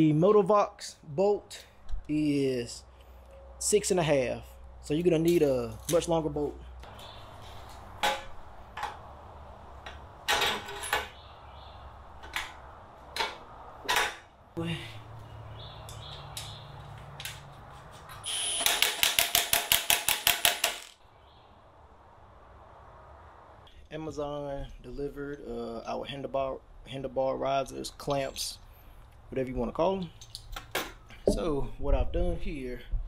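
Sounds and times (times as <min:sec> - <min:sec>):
metal parts knocking and clinking: 0:09.8 - 0:11.2, 0:18.6 - 0:21.0.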